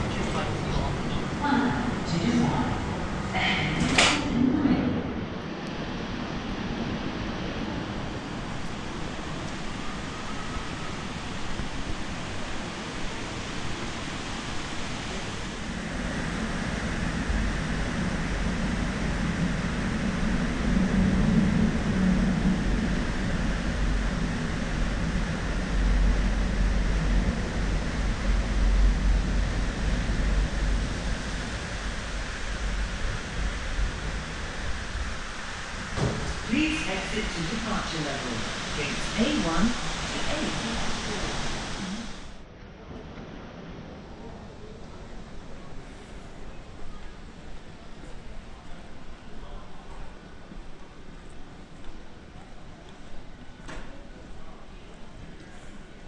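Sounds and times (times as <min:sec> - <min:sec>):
ventilation hiss: 0:00.0 - 0:56.0
low rumble: 0:15.6 - 0:42.4
distant activity: 0:35.2 - 0:42.2.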